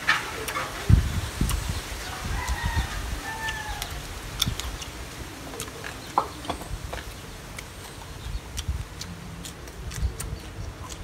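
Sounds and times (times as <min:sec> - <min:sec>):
rooster crowing: 0:02.0 - 0:04.0.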